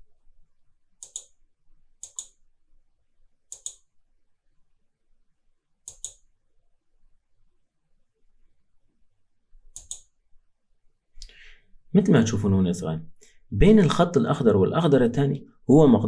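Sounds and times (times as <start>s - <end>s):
computer mouse double clicks: 1.0s - 1.3s, 2.0s - 2.4s, 3.5s - 3.8s, 5.9s - 6.2s, 9.8s - 10.1s.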